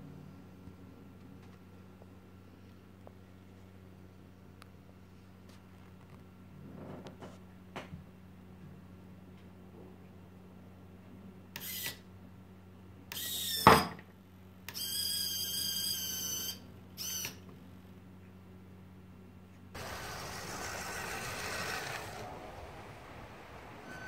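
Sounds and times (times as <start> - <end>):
electric winch motor whining: 19.8 - 24.0
steady rushing noise: 19.8 - 24.0.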